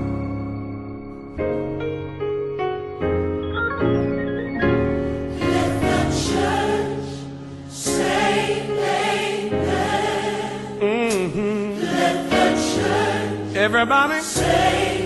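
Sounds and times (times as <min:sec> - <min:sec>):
choir singing held chords: 0:04.3 - 0:15.0
solo voice singing: 0:10.7 - 0:12.3, 0:13.5 - 0:14.7.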